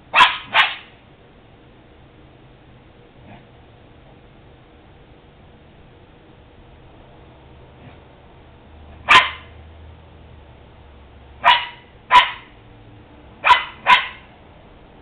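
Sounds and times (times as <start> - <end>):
dog barking: 0.1 - 1.0, 9.0 - 9.6, 11.4 - 12.6, 13.4 - 14.3.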